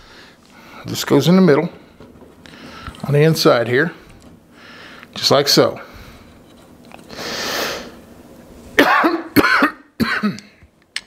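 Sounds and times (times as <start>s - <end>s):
man coughing: 8.8s - 10.6s.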